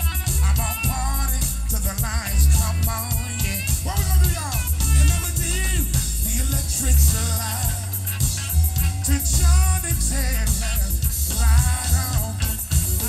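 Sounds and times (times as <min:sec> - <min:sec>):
drums: 0:00.0 - 0:13.0
heavy pulsing bass line: 0:00.0 - 0:13.0
live band playing: 0:00.0 - 0:13.0
man singing into microphone: 0:00.0 - 0:13.0.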